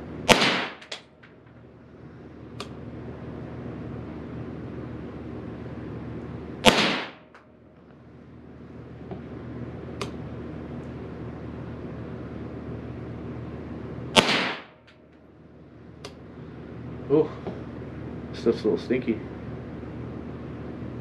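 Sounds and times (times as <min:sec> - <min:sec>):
steady low hum: 0:00.0 - 0:21.0
rifle shots with echo: 0:00.2 - 0:01.1, 0:06.6 - 0:07.4, 0:14.2 - 0:14.8.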